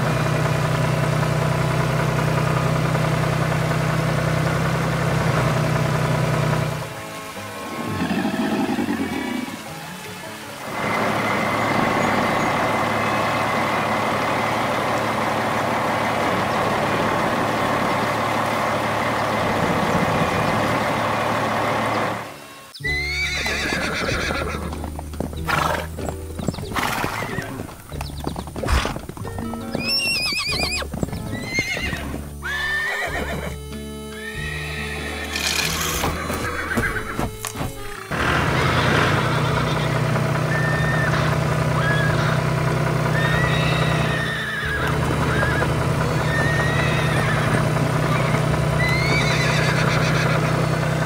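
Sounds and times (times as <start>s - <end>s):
background music: 5.4s - 40.9s, 43.2s - 51.0s
horse whinnies: 7.6s - 9.7s, 22.8s - 24.8s, 25.4s - 26.0s, 26.7s - 27.8s, 28.6s - 42.4s, 43.2s - 50.6s.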